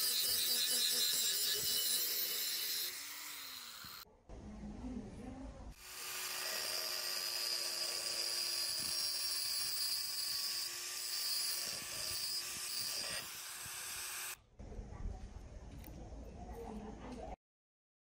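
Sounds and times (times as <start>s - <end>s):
angle grinder cutting steel: 0.0s - 4.0s, 5.8s - 14.4s.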